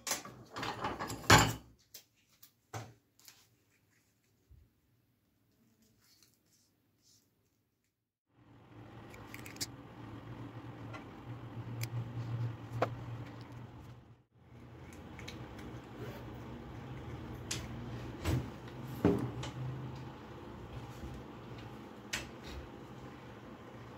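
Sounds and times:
low hum: 8.3s - 23.9s.

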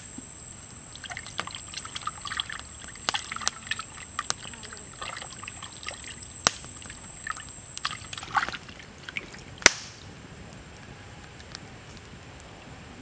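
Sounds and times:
water sloshing in metal pan: 1.0s - 9.4s.

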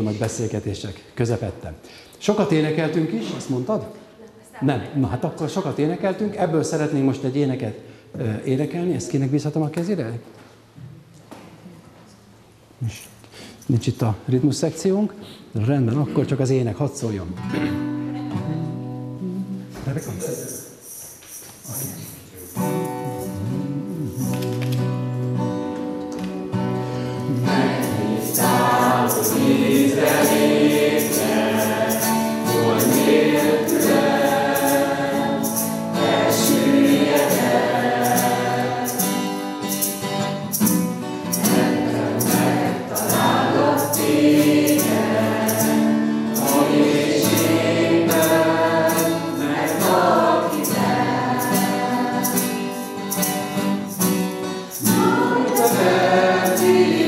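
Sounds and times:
congregation singing: 27.0s - 39.9s, 40.5s - 54.0s, 54.6s - 57.0s.

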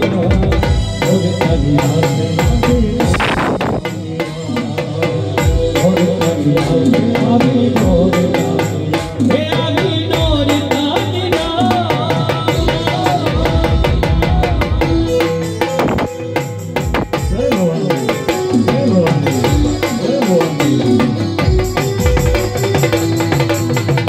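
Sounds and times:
electronic keyboard melody: 0.0s - 24.0s
fast hand drum rhythm: 0.0s - 24.0s
higher held melody line: 0.0s - 24.0s.

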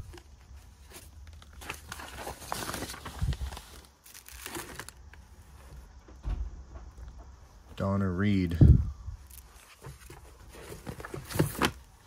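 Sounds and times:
paper pages rustling: 0.0s - 5.8s, 9.3s - 12.0s
soft low thump: 6.1s - 7.4s.

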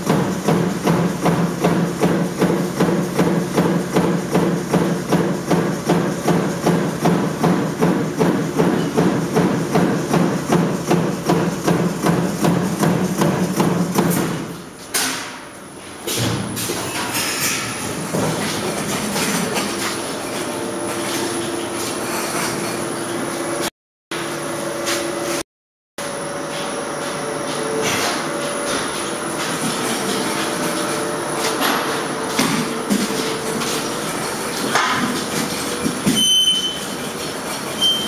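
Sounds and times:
shop machinery hum: 0.0s - 25.4s, 26.0s - 38.0s.

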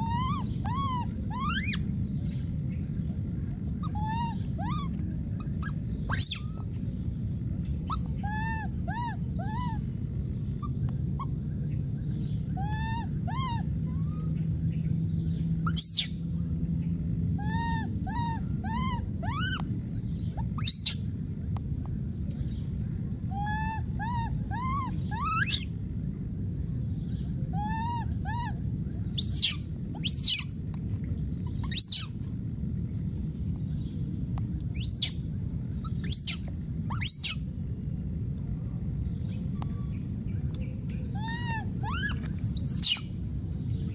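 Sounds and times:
baby monkey whistle-like calls: 0.0s - 2.0s, 3.7s - 6.7s, 7.8s - 10.0s, 10.6s - 11.4s, 12.4s - 14.4s, 15.6s - 16.2s, 17.3s - 19.7s, 20.3s - 21.1s, 23.3s - 25.8s, 27.5s - 30.6s, 31.4s - 32.2s, 34.7s - 35.2s, 35.8s - 37.5s, 41.0s - 43.2s.

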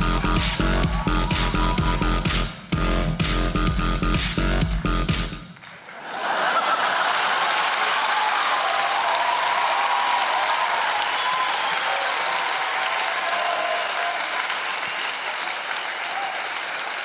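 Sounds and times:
audience applauding: 0.0s - 2.0s, 5.6s - 17.0s
audience laughing: 5.8s - 8.0s.

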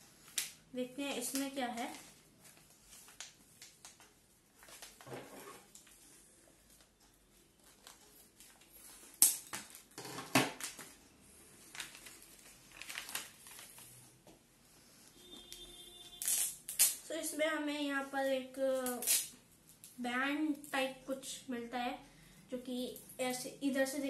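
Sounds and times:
packaging crinkling: 11.6s - 14.0s.

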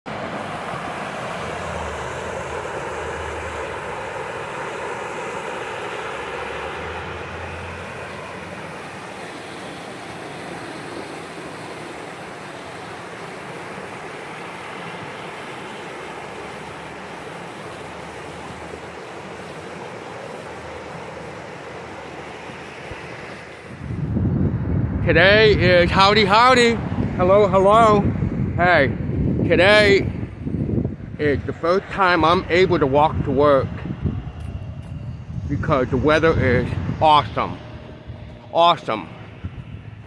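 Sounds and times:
wind rumble on microphone: 23.6s - 40.0s.

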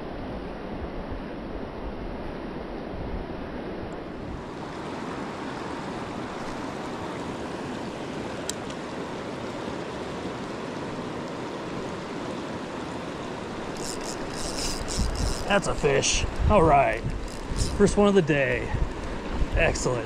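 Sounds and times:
river rushing over rocks: 4.3s - 20.0s.

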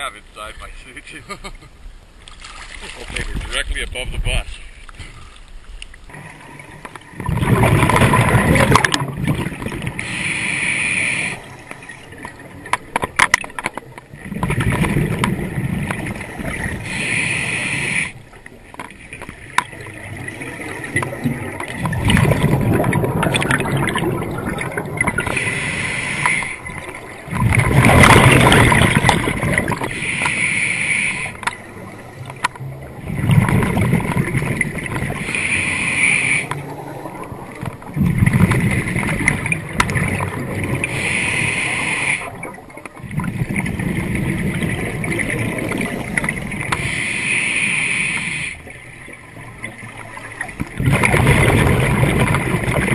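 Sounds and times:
exhaled bubbles rushing: 6.1s - 10.1s, 14.0s - 16.9s, 19.1s - 25.7s, 26.4s - 30.0s, 31.3s - 35.8s, 36.5s - 41.1s, 42.2s - 46.8s, 48.6s - 52.9s
regulator inhale hiss: 10.0s - 11.6s, 16.8s - 18.2s, 25.3s - 26.6s, 29.9s - 31.4s, 35.2s - 36.6s, 40.9s - 42.4s, 46.8s - 48.8s.

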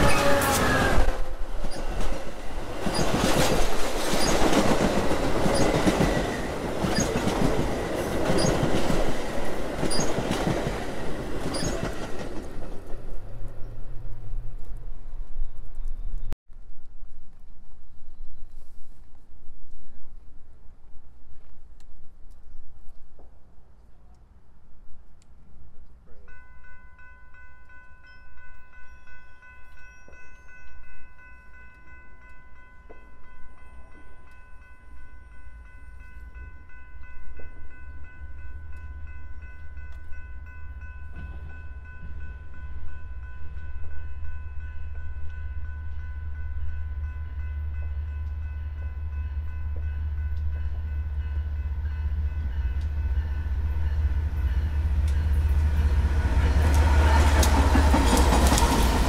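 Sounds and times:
crossing warning bell ringing: 0.0s - 13.1s, 26.2s - 59.0s
train rumble: 0.0s - 16.4s, 32.6s - 59.0s.

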